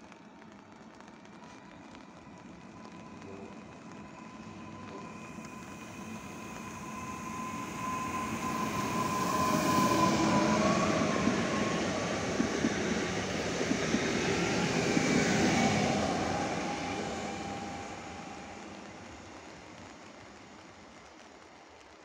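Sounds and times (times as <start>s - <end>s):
train wheels rumbling on rail: 0.0s - 22.0s.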